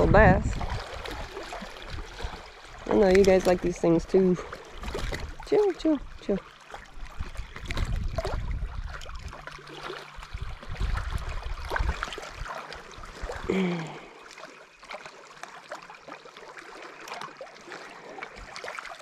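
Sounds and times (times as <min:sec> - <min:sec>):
low rumble: 0:07.1 - 0:13.5
person humming: 0:13.5 - 0:14.1.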